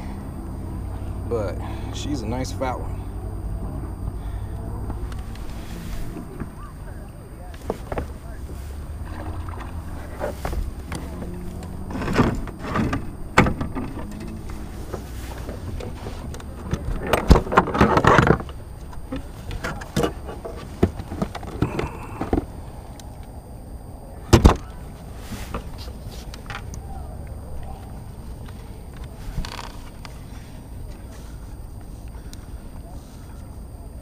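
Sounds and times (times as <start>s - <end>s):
low wind rumble: 0.0s - 32.9s
clatter on plastic kayak: 9.0s - 22.5s.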